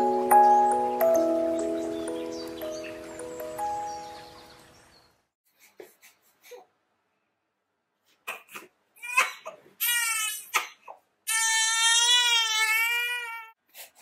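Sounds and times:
baby crying: 8.3 - 13.6.

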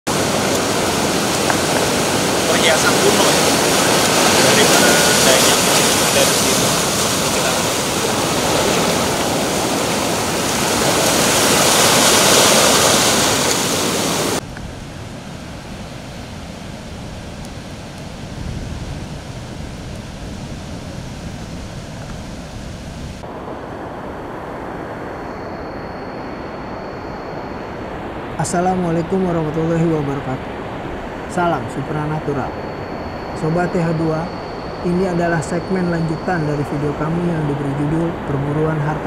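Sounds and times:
ocean surf breaking on beach: 0.1 - 39.0.

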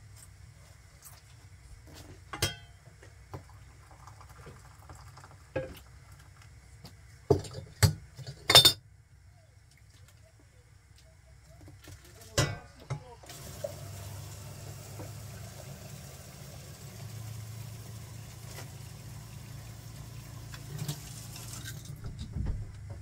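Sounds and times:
kettle and teapot clinking: 7.4 - 8.8, 20.4 - 22.0.

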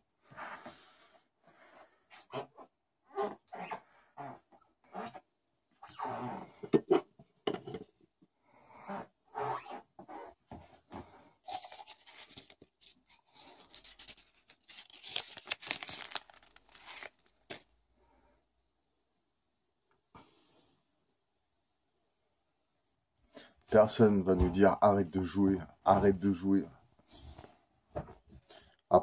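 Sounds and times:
paper crinkling and rustling: 11.4 - 17.7.

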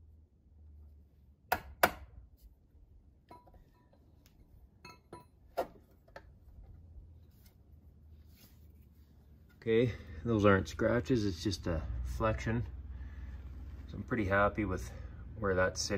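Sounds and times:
metal tapping and clinking: 3.3 - 4.2, 4.8 - 6.3.

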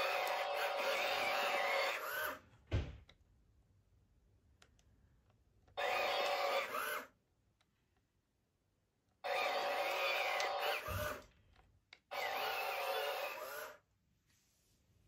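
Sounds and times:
toy robot motors whirring: 0.0 - 2.5, 5.7 - 7.2, 9.2 - 11.3, 12.0 - 13.9
thump: 2.7 - 3.0.

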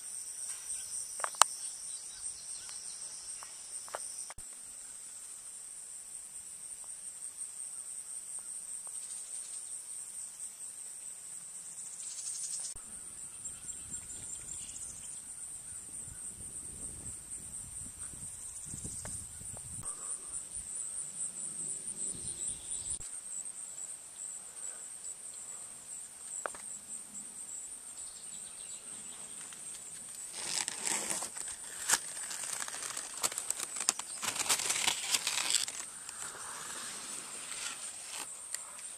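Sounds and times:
insects trilling: 0.0 - 38.9
leaves rustling and crackling: 29.3 - 38.6.

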